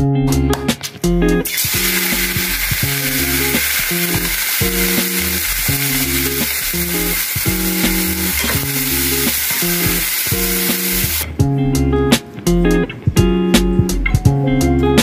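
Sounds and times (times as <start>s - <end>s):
background music: 0.0s - 15.0s
metal spatula stir-frying: 1.5s - 11.2s
paste sizzling in hot oil: 1.5s - 11.2s.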